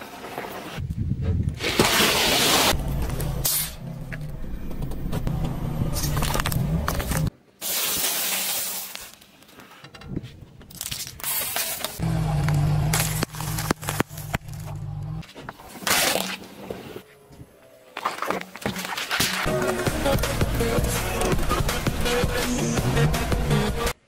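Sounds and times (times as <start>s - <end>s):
car engine running: 2.8s - 7.3s, 12.0s - 15.2s
tyre crushing small objects: 5.9s - 9.8s, 10.6s - 16.9s.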